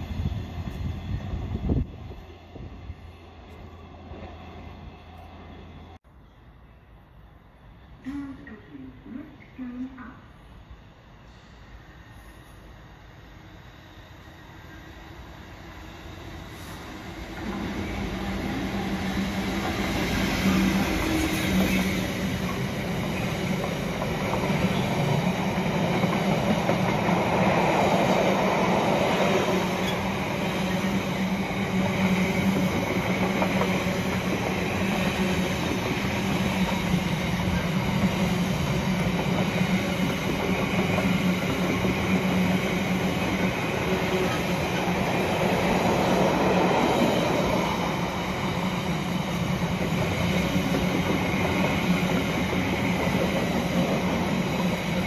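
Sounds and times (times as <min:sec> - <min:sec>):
freight train wagons rumbling over rails: 0:16.1 - 0:55.0.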